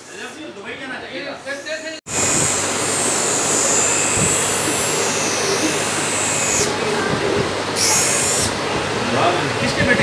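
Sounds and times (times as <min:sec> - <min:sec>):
high grinding hiss: 0:01.5 - 0:06.8, 0:07.7 - 0:08.6
grinding machine drone: 0:01.6 - 0:08.7.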